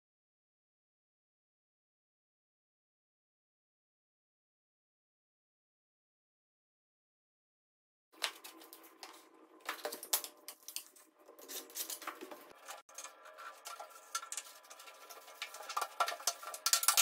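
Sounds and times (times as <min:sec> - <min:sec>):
laminate planks clicking together: 0:11.8 - 0:17.0.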